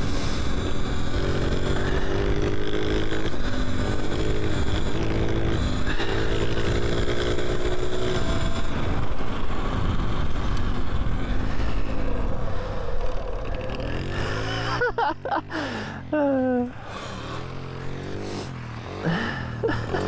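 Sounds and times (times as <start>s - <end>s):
electric bike hum: 0.0s - 20.0s
wind rushing over microphone: 7.3s - 14.4s.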